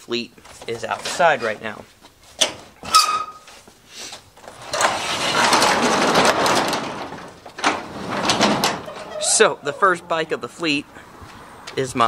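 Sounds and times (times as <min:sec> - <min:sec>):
garage door rumbling up tracks: 0:04.4 - 0:11.6.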